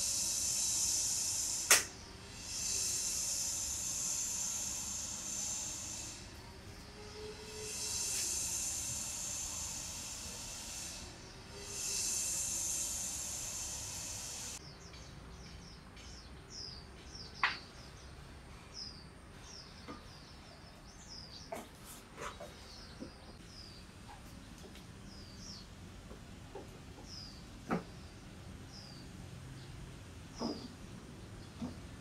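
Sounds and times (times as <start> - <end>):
steady hiss: 0.0 - 14.6
small birds chirping: 10.7 - 32.0.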